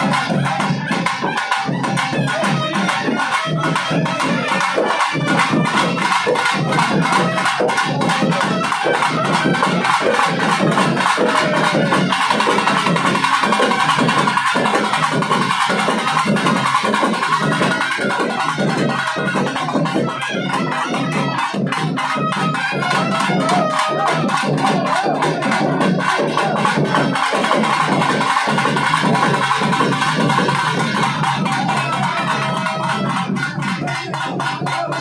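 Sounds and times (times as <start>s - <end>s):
fast dense drumming: 0.0s - 35.0s.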